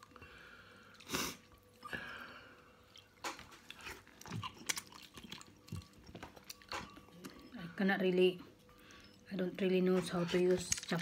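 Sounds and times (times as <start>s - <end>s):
person chewing noodles: 0.0s - 7.5s.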